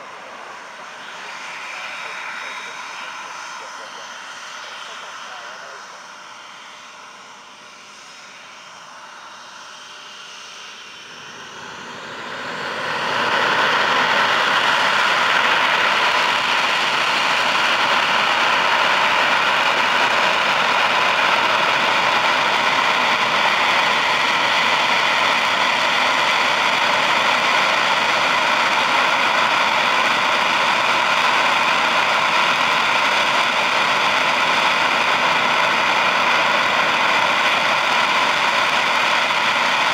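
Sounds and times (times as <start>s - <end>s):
jet engines running up: 0.0s - 39.9s.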